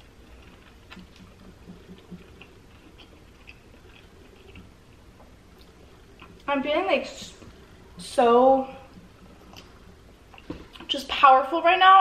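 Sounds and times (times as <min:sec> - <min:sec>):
person chewing food: 0:00.0 - 0:06.5, 0:08.9 - 0:10.9.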